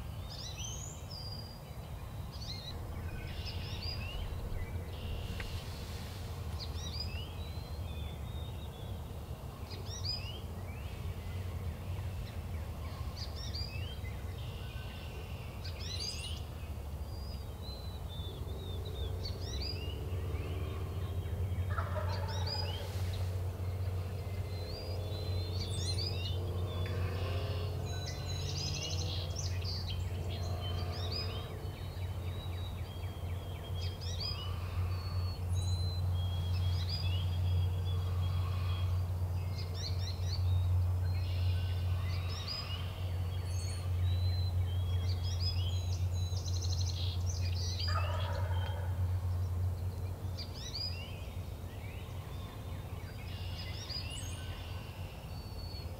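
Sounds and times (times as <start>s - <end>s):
songbirds chirping: 0.0s - 55.9s
steady low rumble: 1.6s - 15.8s
turkey gobbling: 21.7s - 22.7s, 47.9s - 49.0s.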